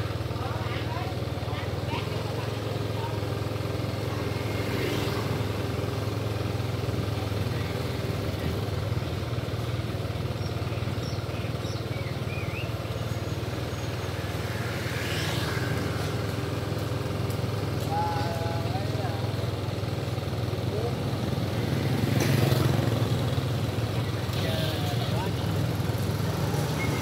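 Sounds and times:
street traffic: 0.0 - 27.0
vehicle passing: 1.9 - 6.2, 13.0 - 19.4, 20.8 - 27.0.

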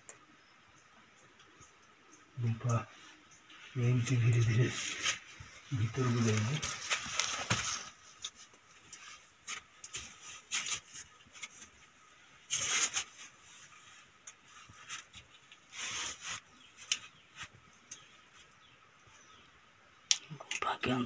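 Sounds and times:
rustling and scraping: 2.8 - 19.4.

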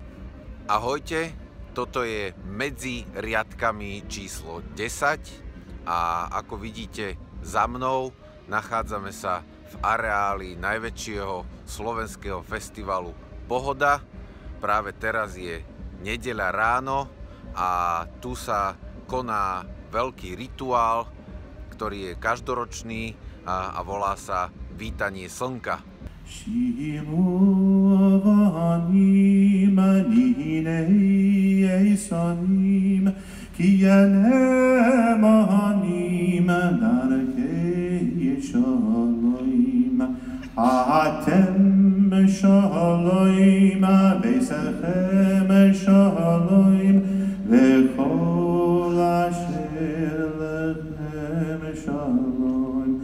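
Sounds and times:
voices chanting slow song: 26.1 - 53.0.

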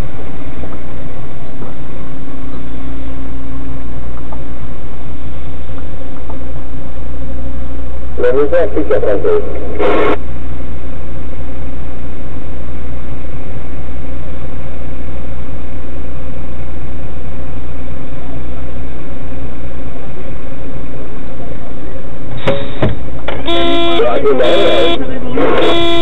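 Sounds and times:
vehicle engine idling: 0.0 - 9.4.

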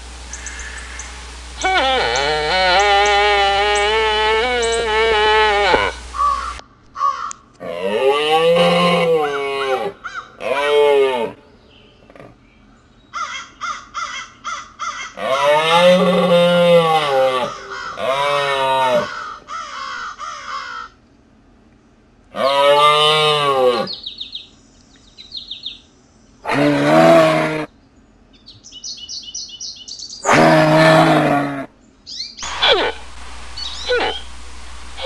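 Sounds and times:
bird chirps: 0.3 - 1.7, 23.9 - 26.4, 27.8 - 30.3, 32.0 - 32.7, 33.5 - 34.4
moose calls: 0.3 - 7.3, 32.4 - 35.0.

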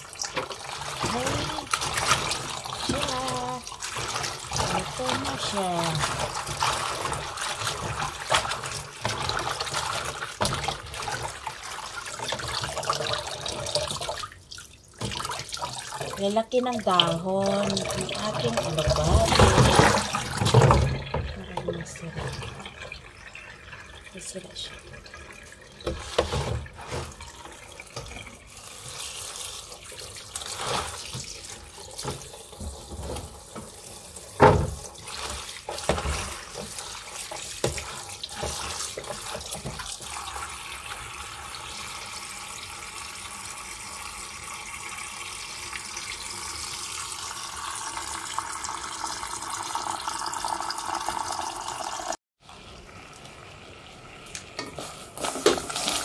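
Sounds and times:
splashes and knocks in basin: 0.0 - 23.0, 25.8 - 41.1
tap water running into basin: 0.0 - 56.0.

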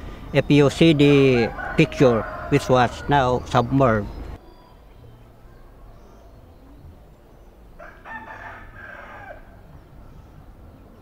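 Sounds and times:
faint low background noise: 0.0 - 11.0
rooster crowing: 1.0 - 3.4, 7.8 - 9.7.

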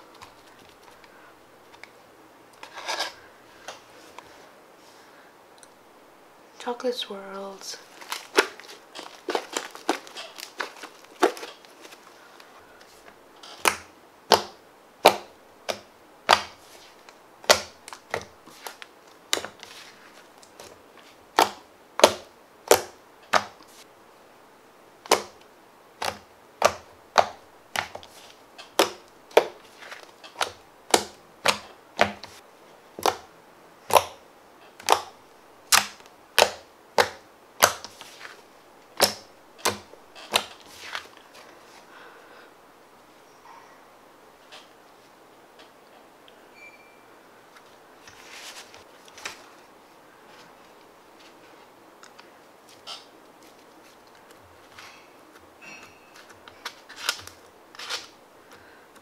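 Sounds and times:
slime crackles: 7.8 - 23.9.

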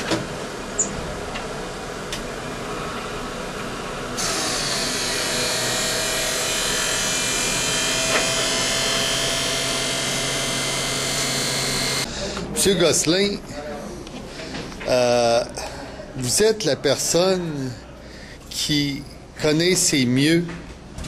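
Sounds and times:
grinding wheel whine and hiss: 0.0 - 12.1.

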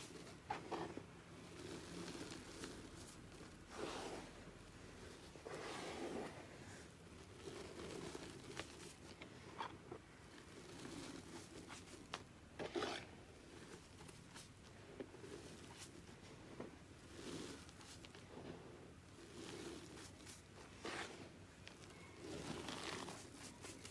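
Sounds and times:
small crackles: 6.8 - 23.9
chalk crunching between hands: 17.0 - 18.4, 19.1 - 23.9.

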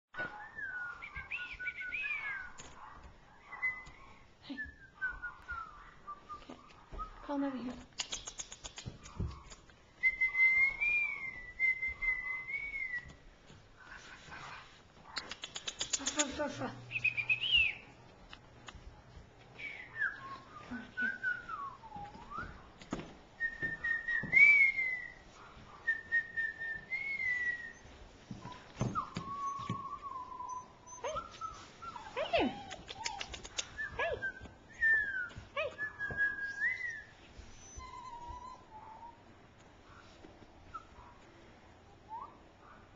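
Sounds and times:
puppy whining: 24.6 - 42.8.

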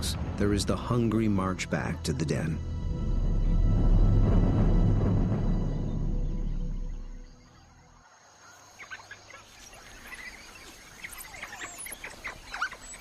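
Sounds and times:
low music: 0.0 - 7.7
high chirping calls: 6.2 - 13.0.

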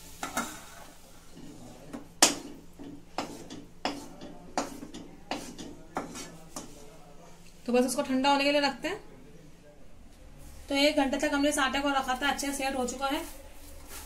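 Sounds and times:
wooden spatula scraping a pan: 0.0 - 6.9.

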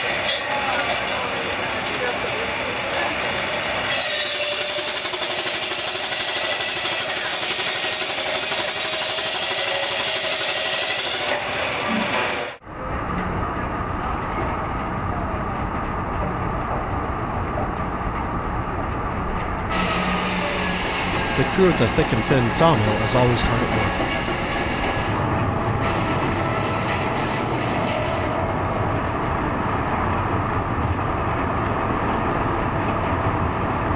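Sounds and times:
circular saw ripping through log: 3.9 - 11.4
low machinery hum: 11.4 - 33.9.

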